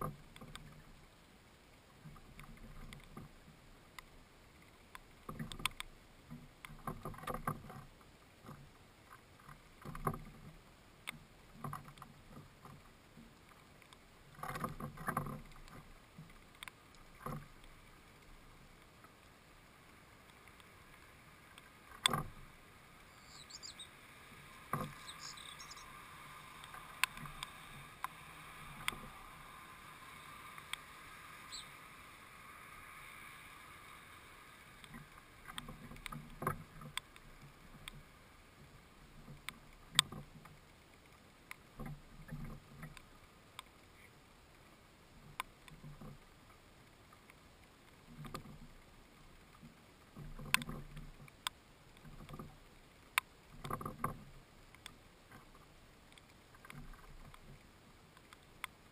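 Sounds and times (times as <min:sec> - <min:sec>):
faint bird chirps: 0:23.0 - 0:26.2, 0:31.4 - 0:31.8.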